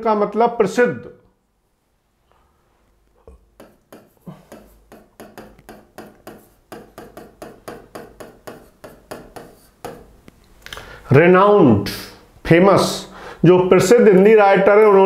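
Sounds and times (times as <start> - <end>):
light taps: 3.3 - 10.8.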